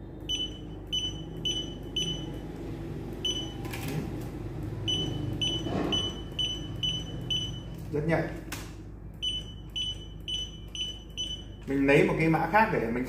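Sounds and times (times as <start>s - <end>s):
barcode scanner short high beeps: 0.3s - 2.4s, 4.9s - 7.8s, 9.2s - 11.6s.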